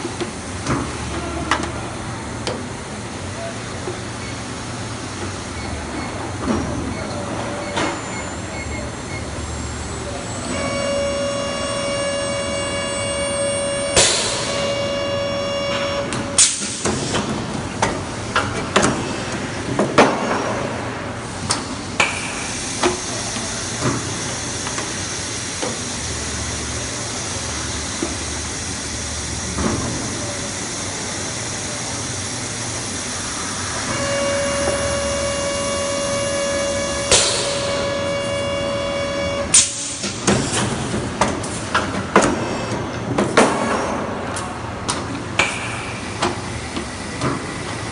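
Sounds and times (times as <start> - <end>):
pitched machine whine: 8.6 - 16.8, 31.3 - 40.2
machine hum: 9.1 - 16.8, 32.2 - 40.2
sharp rush of air: 30.8 - 38.2.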